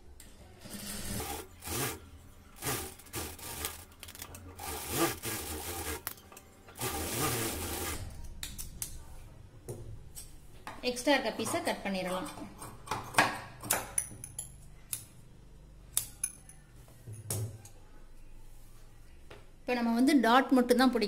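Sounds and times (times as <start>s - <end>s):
sewing machine stitching: 0.6s - 2.0s, 2.6s - 6.1s, 6.8s - 8.0s.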